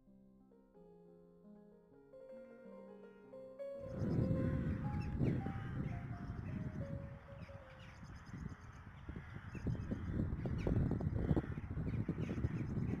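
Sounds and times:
piano notes: 0.0s - 8.3s
crows cawing: 7.2s - 10.3s, 11.2s - 11.8s.

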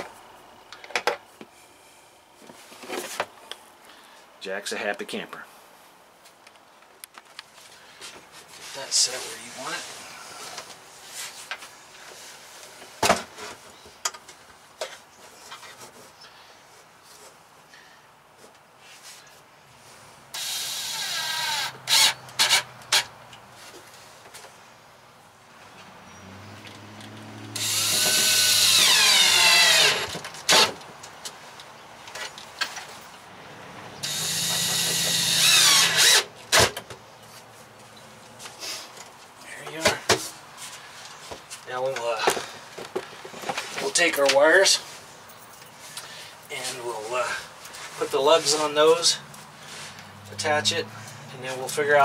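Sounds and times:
drill driving screws into wood: 20.3s - 23.1s, 27.6s - 30.8s, 34.0s - 36.8s.

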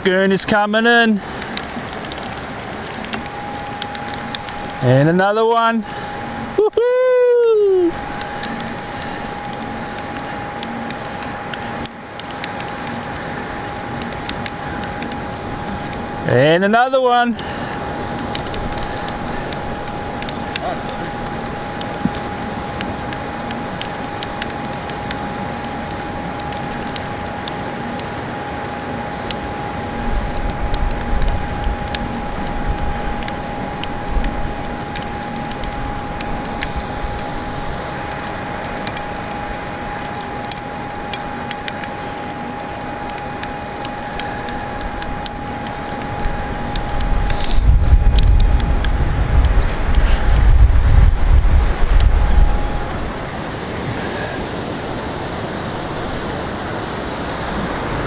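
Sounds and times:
wind buffeting microphone: 17.4s - 58.0s.

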